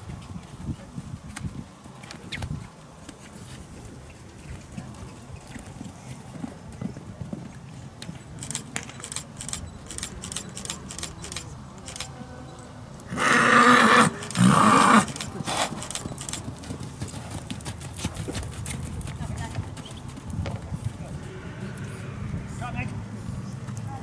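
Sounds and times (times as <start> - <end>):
horse whinnying: 13.1 - 15.8
hoofbeats on sand: 15.4 - 21.2.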